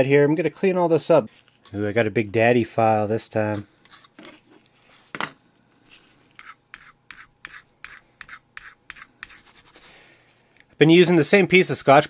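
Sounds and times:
metal file rasping on metal: 0:06.4 - 0:09.8.

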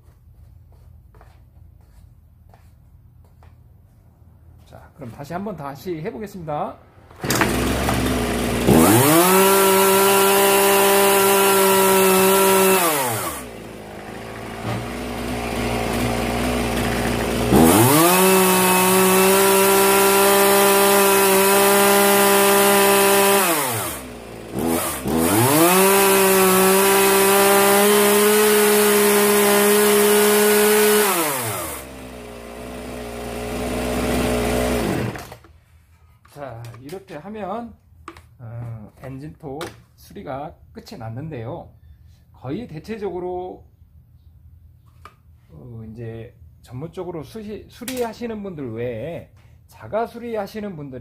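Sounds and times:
chainsaw revving and idling: 0:07.2 - 0:35.5.

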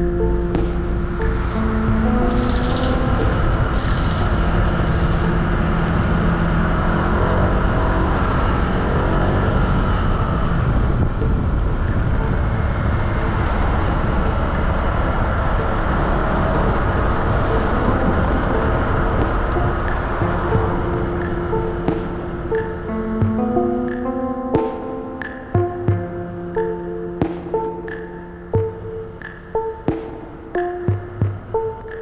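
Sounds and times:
motorcycle engine running: 0:00.0 - 0:24.0
low rumble: 0:00.0 - 0:24.3.

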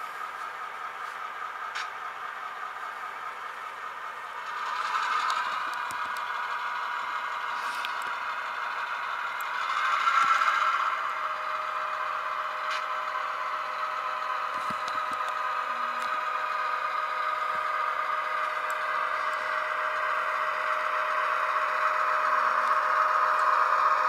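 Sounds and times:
diesel engine drone from speaker: 0:00.0 - 0:24.0
faint clicks on rails: 0:00.4 - 0:02.0, 0:14.6 - 0:15.4.

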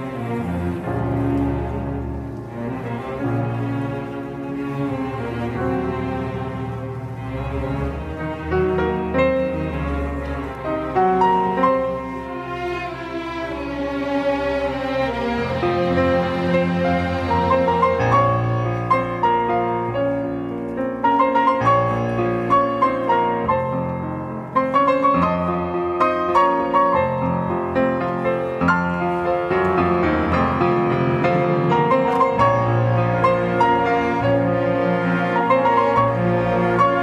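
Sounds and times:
strings holding low notes: 0:00.0 - 0:37.0
grand piano playing quick notes: 0:15.7 - 0:37.0.

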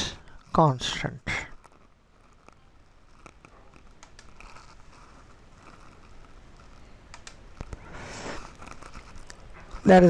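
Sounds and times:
computer mouse clicks: 0:03.3 - 0:04.7, 0:07.1 - 0:07.8.

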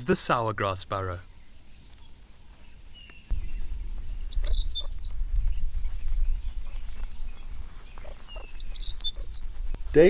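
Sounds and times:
small birds chirping: 0:00.0 - 0:10.0
low rumbling noise: 0:03.3 - 0:07.7.

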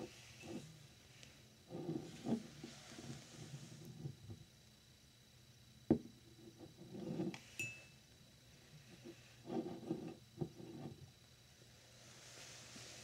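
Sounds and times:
sliding and rubbing: 0:01.7 - 0:04.2, 0:06.8 - 0:07.5, 0:08.9 - 0:11.0
glass clink: 0:07.6 - 0:08.0.

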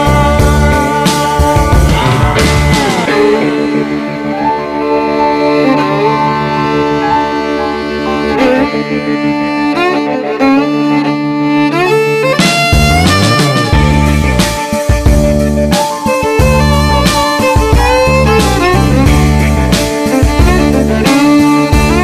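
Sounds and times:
sustained low chord: 0:00.0 - 0:10.3, 0:12.4 - 0:15.7
sliding melody of held notes: 0:00.0 - 0:22.0.

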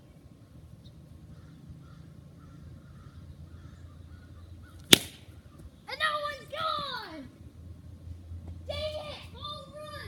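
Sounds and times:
crows cawing: 0:01.3 - 0:04.8.

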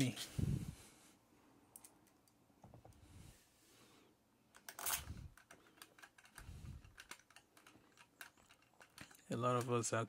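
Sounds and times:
small screws clinking: 0:04.6 - 0:09.7
hand tool clicking and clinking: 0:04.6 - 0:09.8.

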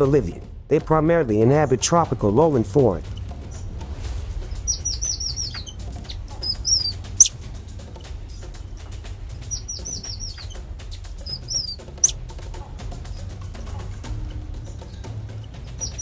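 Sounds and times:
high chirping calls: 0:04.5 - 0:16.0.

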